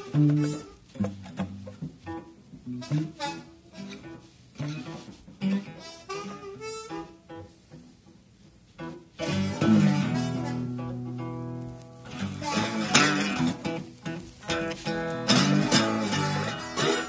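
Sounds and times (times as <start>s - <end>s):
guitar picked notes and chords: 0.0s - 17.0s.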